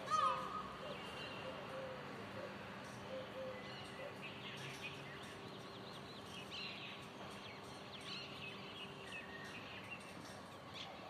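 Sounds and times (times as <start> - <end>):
small birds chirping: 2.9 - 11.0.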